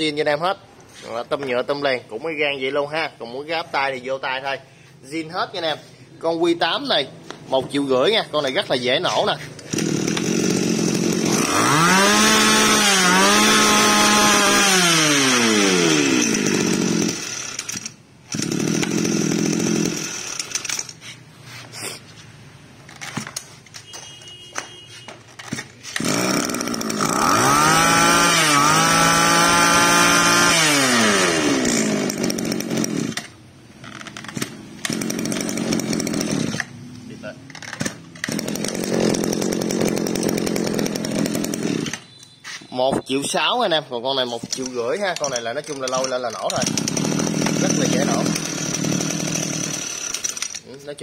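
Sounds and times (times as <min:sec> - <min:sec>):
brush-cutter engine revving: 0:08.4 - 0:21.2, 0:25.6 - 0:36.8, 0:37.6 - 0:42.0, 0:44.3 - 0:50.7.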